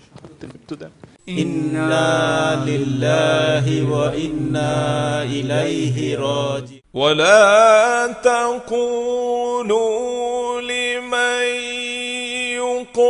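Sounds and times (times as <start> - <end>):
steady low hum: 1.2 - 6.8
man chanting: 1.2 - 13.0.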